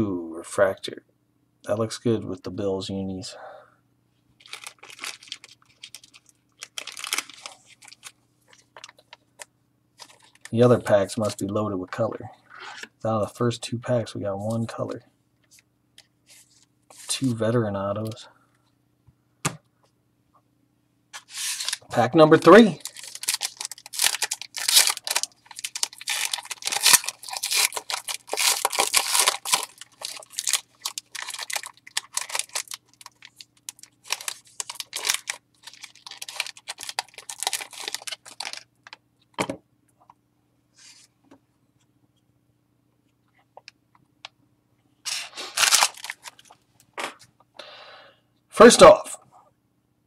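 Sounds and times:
faint handling sounds: 4.2 - 13.0, 14.3 - 18.8
foil wrapper crinkling and tearing: 4.4 - 9.2, 10.0 - 10.6, 21.2 - 39.0, 45.1 - 46.6.

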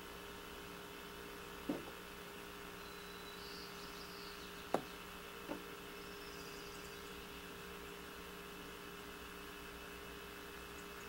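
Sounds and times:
electrical hum and hiss: 0.0 - 11.0
faint high chirps: 2.8 - 5.0.

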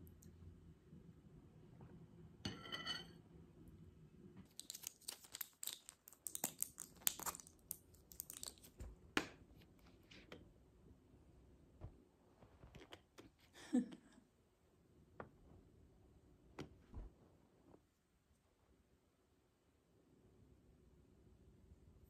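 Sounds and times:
spoon clinking on ceramic bowl: 2.5 - 3.2
blister pack crinkling: 4.5 - 8.9.

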